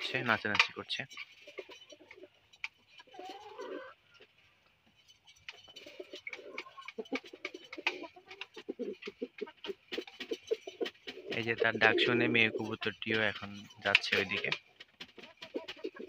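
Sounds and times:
pigeon cooing: 0:01.4 - 0:02.4, 0:03.0 - 0:04.0, 0:05.7 - 0:14.6, 0:15.2 - 0:16.0.

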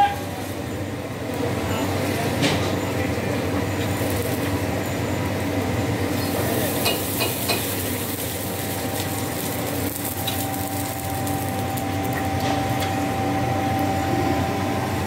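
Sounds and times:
furnace mechanical hum: 0:00.0 - 0:15.0
thin steady whine: 0:00.0 - 0:15.0.

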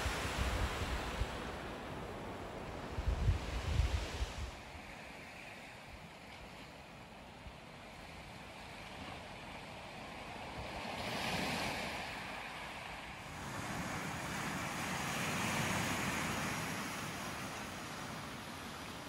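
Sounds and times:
waves breaking on rocky shore: 0:00.0 - 0:05.4.

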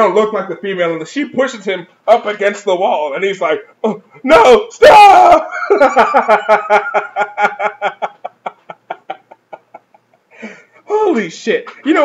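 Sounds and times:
man laughing hard: 0:05.4 - 0:10.7.

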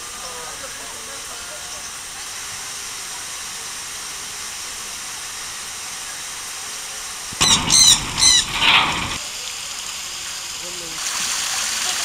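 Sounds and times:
background hiss: 0:07.4 - 0:09.2
parakeet shrill screeches: 0:07.4 - 0:09.2.

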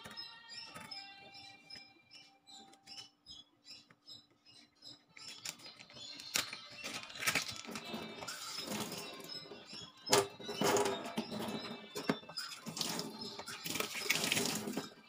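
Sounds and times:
sharp plastic clicks: 0:04.9 - 0:09.4
plastic packaging crinkling: 0:05.4 - 0:09.0.

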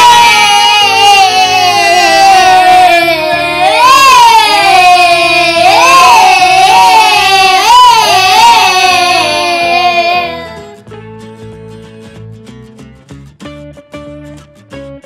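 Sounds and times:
high-pitched voice singing long notes: 0:00.0 - 0:10.8.

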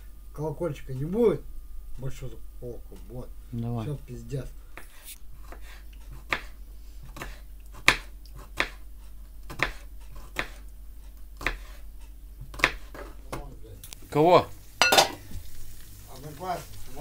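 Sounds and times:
knife chopping on cutting board: 0:04.8 - 0:08.8, 0:09.5 - 0:10.6, 0:11.4 - 0:11.8, 0:12.4 - 0:13.5.

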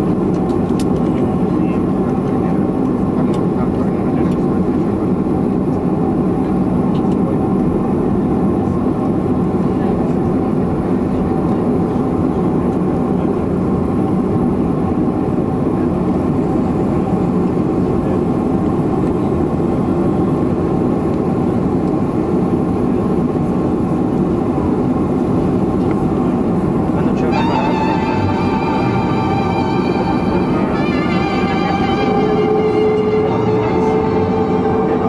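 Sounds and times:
airliner cabin drone: 0:00.0 - 0:35.0
steady tones: 0:27.0 - 0:35.0.

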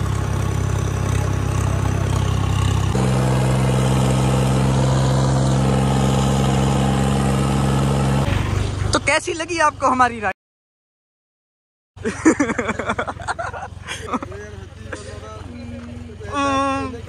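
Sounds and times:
tractor diesel engine running: 0:00.0 - 0:10.3, 0:12.0 - 0:17.0.

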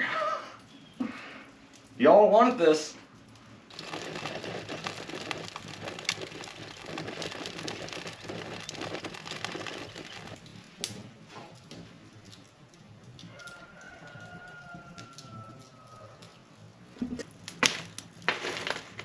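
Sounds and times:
wood fire crackling: 0:00.6 - 0:19.0
sharp crack of fire: 0:03.7 - 0:16.0, 0:17.2 - 0:19.0.

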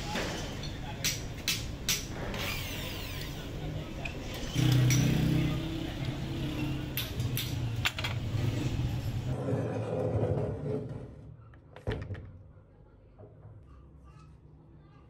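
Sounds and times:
traffic rumble: 0:00.0 - 0:09.4.

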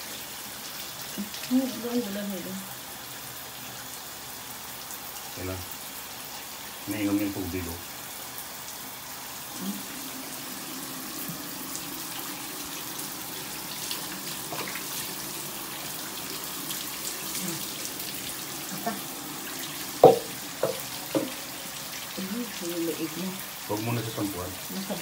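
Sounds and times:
shower water running: 0:00.0 - 0:25.0
sharp knocks: 0:20.0 - 0:21.4.

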